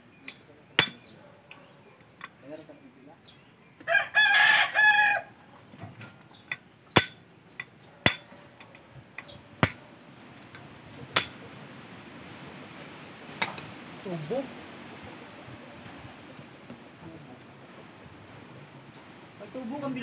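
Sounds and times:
hammer striking metal pipe: 0.3 - 1.1, 7.0 - 8.3, 11.2 - 11.4
rooster crowing: 3.8 - 5.4.

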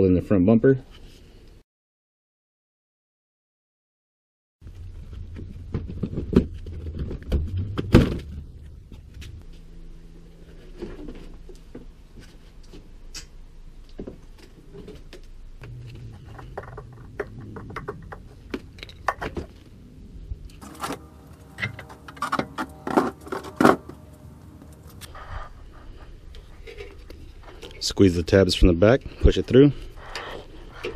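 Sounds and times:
tools and plastic parts clattering: 20.6 - 24.0.

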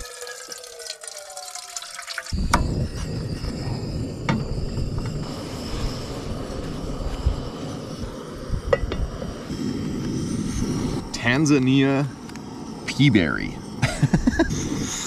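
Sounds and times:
wind buffeting microphone: 2.3 - 15.0.

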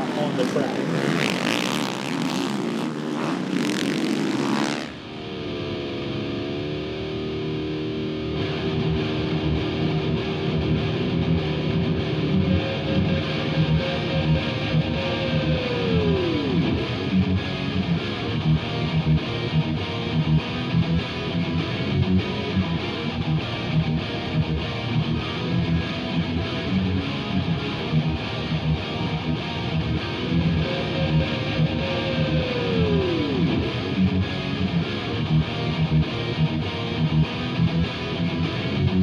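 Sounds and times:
sliding pitch drop: 0.0 - 6.1
rock music with electric guitar: 0.0 - 39.0.

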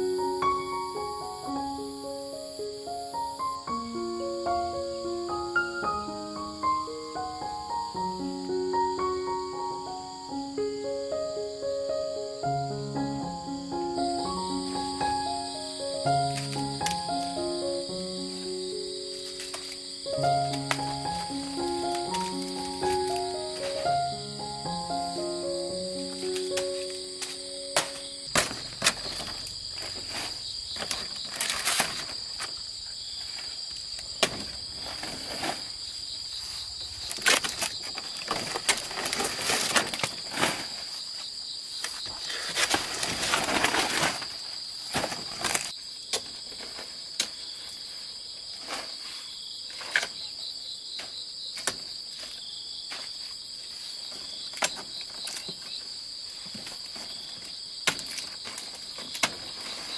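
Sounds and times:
insects chirring: 0.0 - 59.9
banana leaves rustling: 14.2 - 50.3, 51.6 - 59.9
sharp snaps and knocks: 51.0 - 51.9, 57.8 - 59.6.

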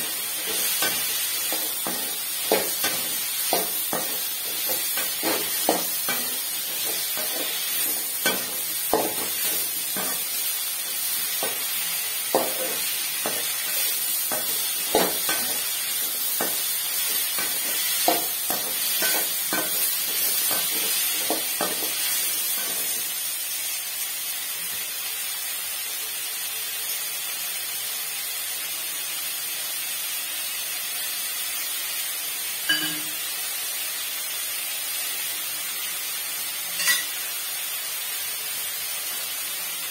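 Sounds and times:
food sizzling in oil: 0.0 - 39.9
metal spoon scraping a pan: 0.1 - 10.5, 12.3 - 23.0, 36.8 - 37.2.

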